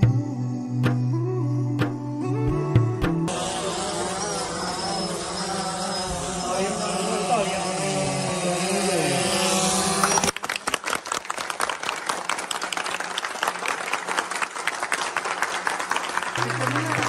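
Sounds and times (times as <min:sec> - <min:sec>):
crowd clapping: 0:10.2 - 0:17.0
people cheering: 0:10.3 - 0:17.0.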